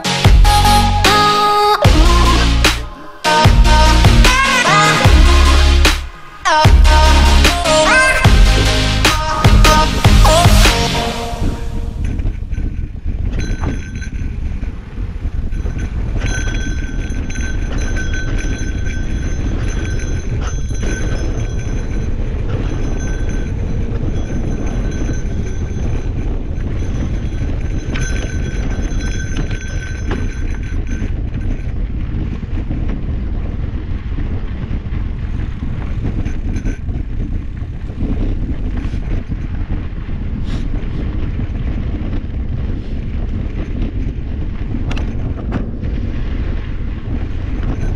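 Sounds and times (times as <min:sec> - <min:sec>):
high-pitched buzz: 0:00.0 - 0:11.9
wind on microphone: 0:01.8 - 0:47.9
bike tyres rumbling and rattling: 0:03.5 - 0:47.9.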